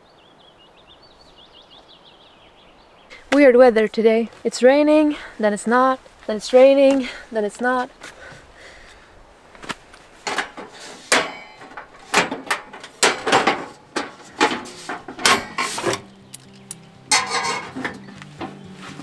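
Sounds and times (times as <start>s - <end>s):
metal stove clattering: 10.2s - 18.1s
soft background music: 15.2s - 19.0s.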